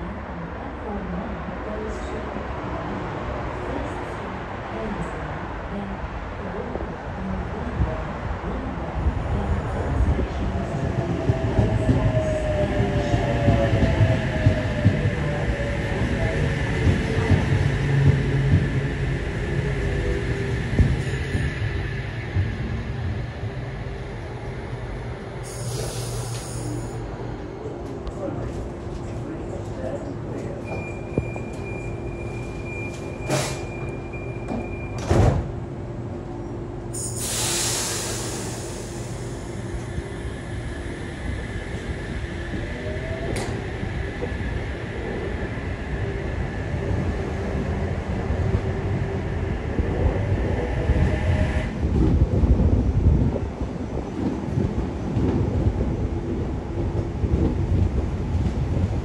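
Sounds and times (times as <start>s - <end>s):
train rumbling: 0.0s - 59.0s
air hissing: 25.4s - 26.9s, 37.0s - 39.7s
train doors thumping shut: 32.9s - 35.6s.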